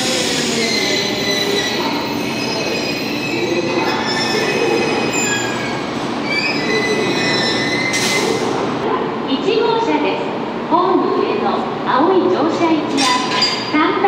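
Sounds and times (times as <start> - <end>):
train wheels squealing on rails: 0.0 - 8.7.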